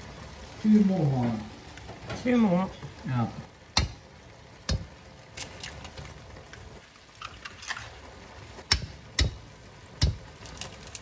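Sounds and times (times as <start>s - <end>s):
vegetables simmering: 0.0s - 11.0s
eggs cracking on a metal pan: 3.7s - 8.0s, 8.6s - 11.0s.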